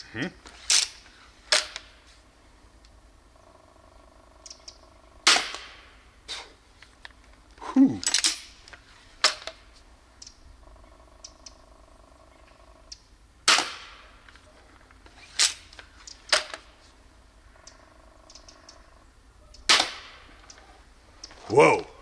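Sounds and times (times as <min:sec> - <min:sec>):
faint steady hum: 0:00.0 - 0:22.0
crossbow shooting bolts: 0:00.7 - 0:02.0, 0:05.2 - 0:06.0, 0:08.0 - 0:09.6, 0:13.4 - 0:14.3, 0:15.3 - 0:16.7, 0:19.6 - 0:20.6.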